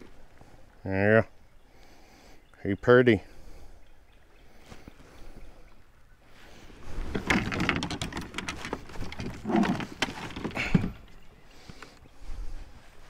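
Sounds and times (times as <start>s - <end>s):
knocks and clatter on plastic kayak: 7.0s - 11.2s.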